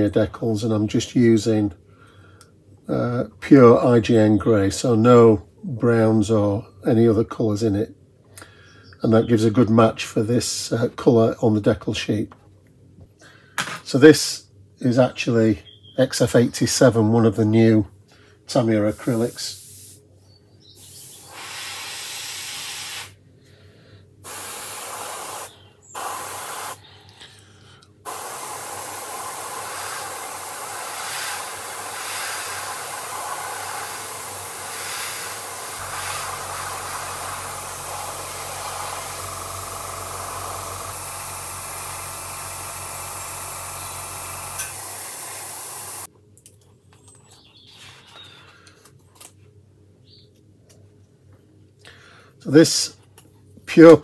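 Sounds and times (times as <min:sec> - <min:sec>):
airbrush spraying hiss: 0:19.0 - 0:20.0, 0:20.8 - 0:23.2, 0:24.2 - 0:26.8, 0:28.1 - 0:46.1.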